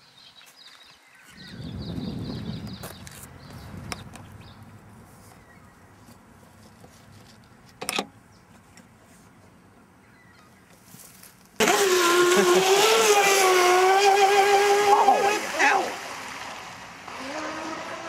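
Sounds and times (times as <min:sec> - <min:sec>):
race boat motor whine: 0:11.6 - 0:18.0.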